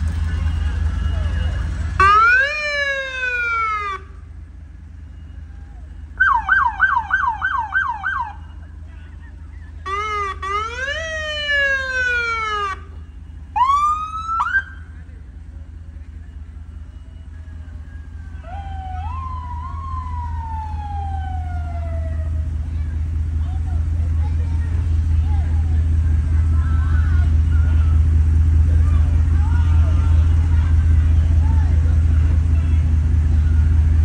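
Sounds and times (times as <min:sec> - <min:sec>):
emergency vehicle sirens: 0:00.0 - 0:34.0
low engine rumble: 0:00.0 - 0:34.0.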